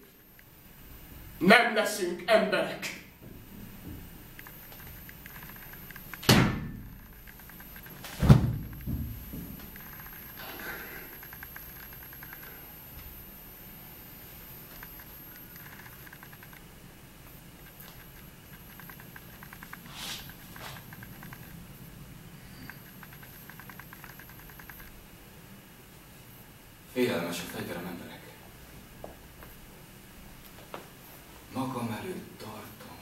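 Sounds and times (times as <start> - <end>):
faint small clicks: 4.4 - 6.3, 7.0 - 13.2, 14.6 - 16.7, 17.6 - 21.6, 22.6 - 25.0
person dropping onto floor: 8.0 - 9.6.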